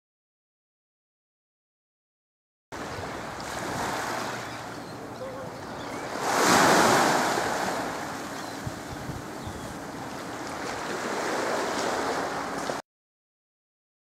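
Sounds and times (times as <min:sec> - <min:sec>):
wind buffeting microphone: 0:02.8 - 0:12.8
small waves on pebble shore: 0:06.1 - 0:08.1, 0:10.4 - 0:12.8.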